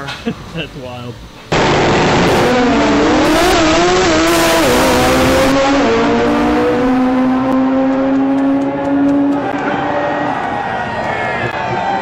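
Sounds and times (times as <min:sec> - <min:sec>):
drag car engine at full throttle: 0:01.5 - 0:10.4.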